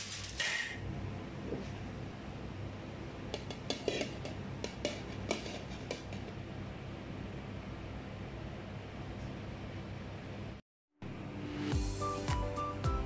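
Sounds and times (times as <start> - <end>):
spoon scraping metal pan: 3.5 - 6.3.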